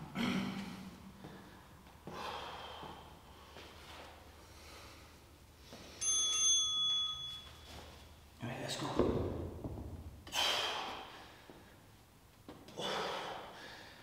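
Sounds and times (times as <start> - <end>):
man breathing hard: 0.2 - 6.0, 10.2 - 12.0, 12.7 - 14.0
electronic timer chime: 6.0 - 7.7.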